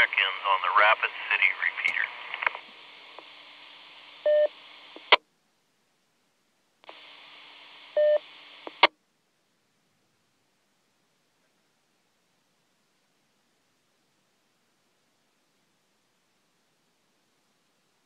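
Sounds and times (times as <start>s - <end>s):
radio channel hiss: 0.0s - 5.2s, 6.8s - 8.9s.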